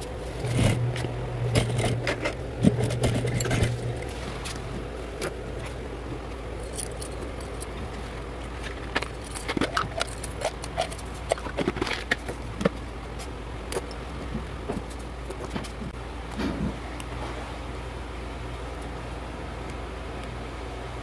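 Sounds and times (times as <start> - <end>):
scissors and fabric moved: 0.0 - 5.8
low electrical hum: 0.0 - 21.0.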